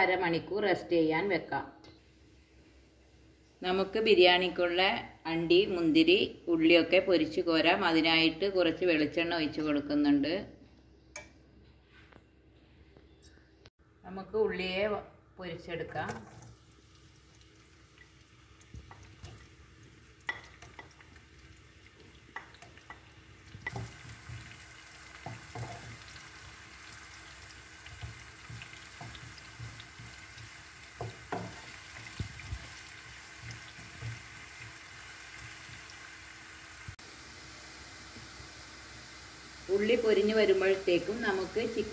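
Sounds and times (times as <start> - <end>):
onions sizzling in a pan: 17.0 - 41.9.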